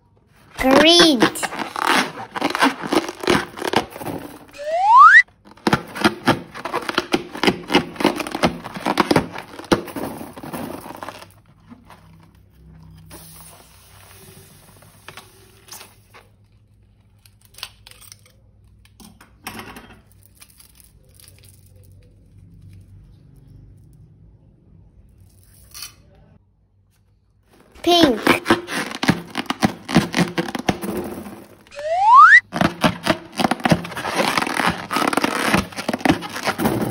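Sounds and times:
slime balloon crackling and tearing: 0.6 - 11.4, 27.7 - 36.9.

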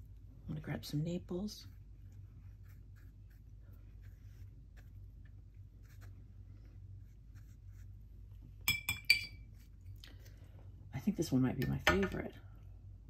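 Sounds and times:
low steady hum: 0.0 - 13.0
brush scratching on paper: 1.6 - 8.2.

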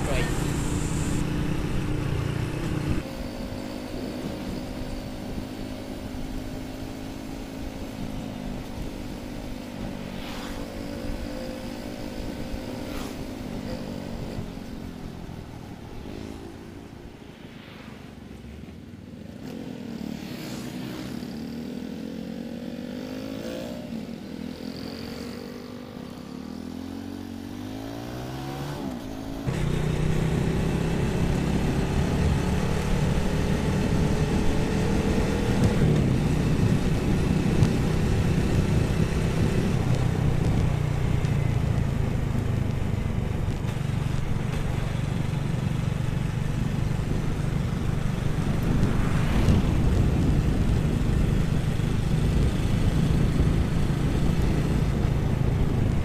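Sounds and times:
motorcycle engine running: 0.0 - 10.2, 28.9 - 56.0.

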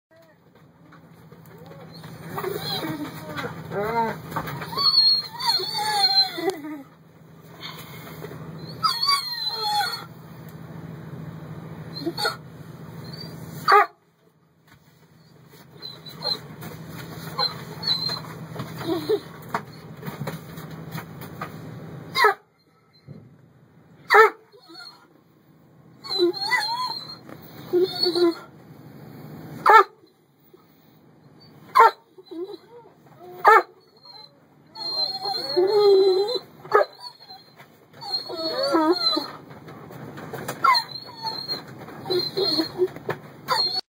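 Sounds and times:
animal whimpering calls: 1.8 - 6.9, 8.6 - 10.1, 17.3 - 19.9, 26.0 - 28.5, 32.1 - 39.4, 40.4 - 43.8.

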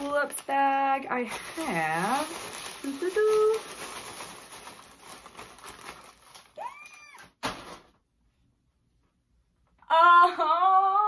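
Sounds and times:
woman squealing excitedly: 6.6 - 7.4.

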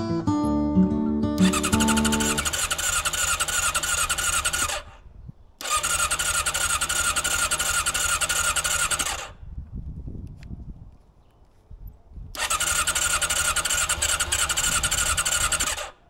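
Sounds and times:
motorcycle starter cranking: 1.4 - 9.4, 12.4 - 16.0.

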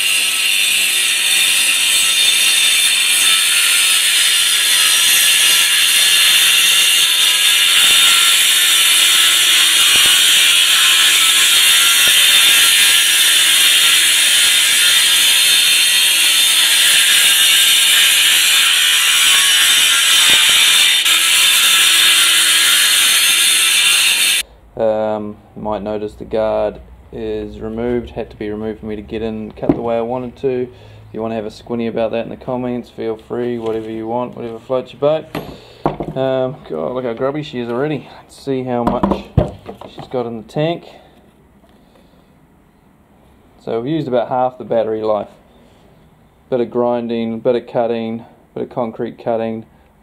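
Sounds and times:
angle grinder grinding concrete: 0.0 - 24.4.

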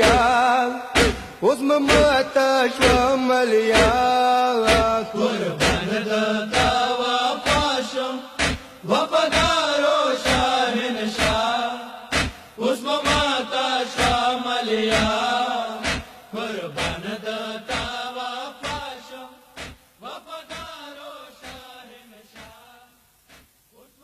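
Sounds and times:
voices chanting a lament: 0.0 - 23.0
chest-beating thumps: 1.0 - 2.2, 2.8 - 3.1, 3.8 - 4.0, 4.7 - 5.0, 5.6 - 5.9, 8.4 - 9.6, 12.1 - 13.3, 15.8 - 16.2, 16.8 - 17.0, 19.6 - 19.9.

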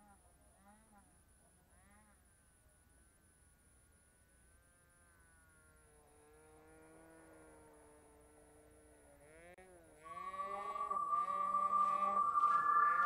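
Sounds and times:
steady electronic tone with music: 10.1 - 13.0.

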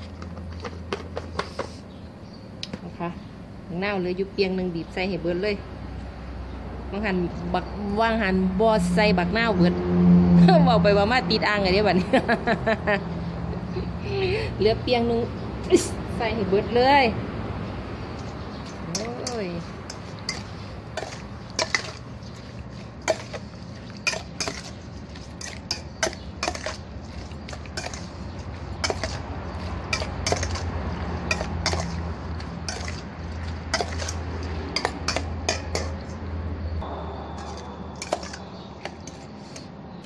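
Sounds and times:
metal spoon clinking in steel bowl: 18.6 - 28.2, 28.8 - 30.6, 31.2 - 32.0, 32.6 - 36.1.

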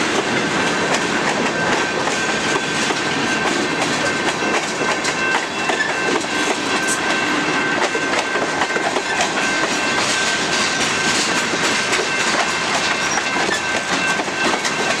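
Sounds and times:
train wheels clattering on rails: 0.0 - 15.0
wheels clicking over rail joints: 7.8 - 15.0.

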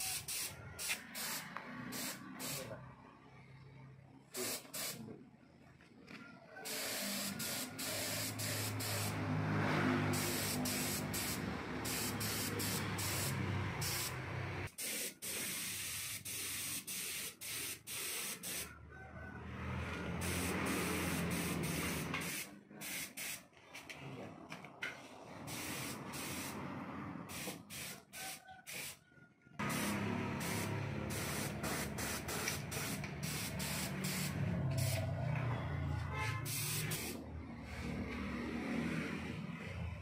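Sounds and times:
spray gun hissing: 0.0 - 2.7, 4.4 - 5.0, 6.7 - 9.2, 10.0 - 18.7, 20.2 - 23.4, 25.5 - 26.6, 27.3 - 28.0, 29.6 - 35.0, 36.5 - 37.2.

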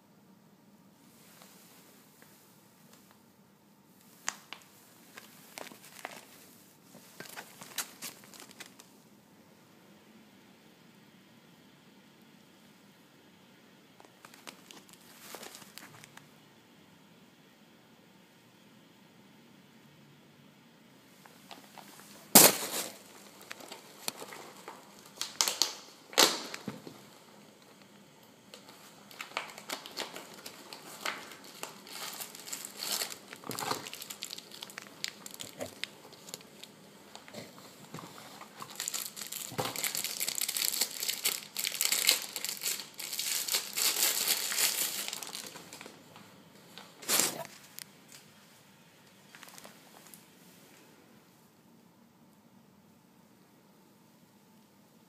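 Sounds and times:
packaging crinkling and rustling: 4.1 - 9.0, 14.0 - 16.3, 21.5 - 48.2, 49.3 - 50.2.

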